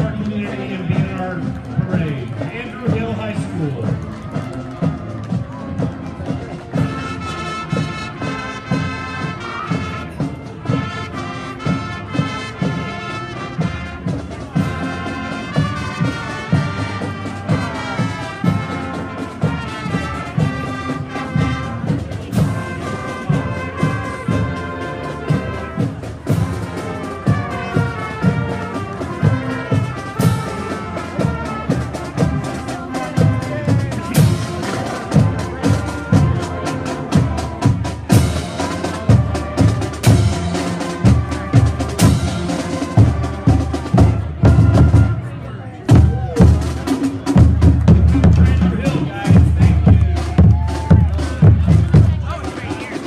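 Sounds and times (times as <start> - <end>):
steady drum beat: 0.0 - 53.0
brass horns playing tune: 6.7 - 45.4.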